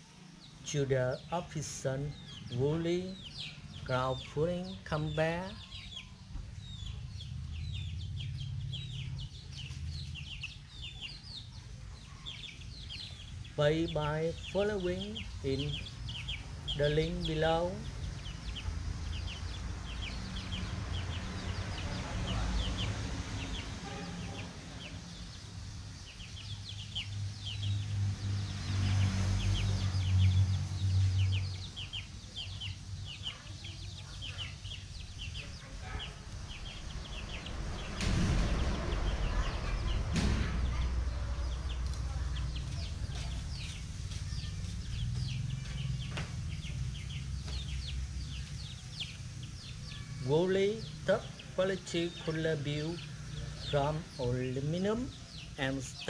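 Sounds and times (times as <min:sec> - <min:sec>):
young chickens peeping and clucking: 0:00.0 - 0:56.0
low rumble: 0:05.8 - 0:33.2, 0:34.5 - 0:50.0.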